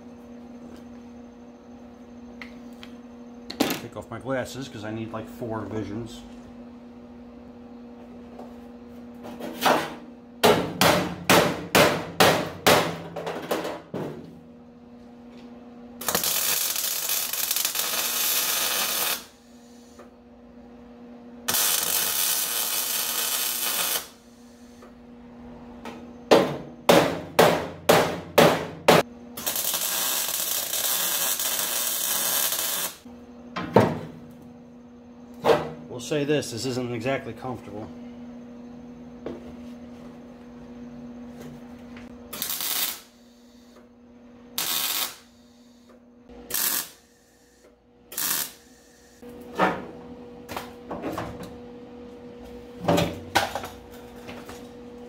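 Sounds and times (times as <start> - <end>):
welding arc hiss: 16.0 - 20.0, 21.5 - 24.8, 29.4 - 33.1, 42.3 - 43.8, 44.6 - 45.9, 46.5 - 49.2.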